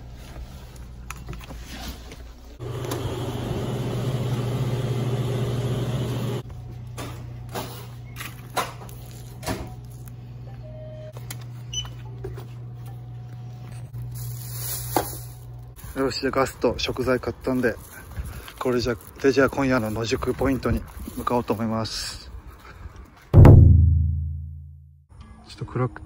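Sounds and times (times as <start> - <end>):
knocks and clicks of goods handled: 6.8 - 9.8.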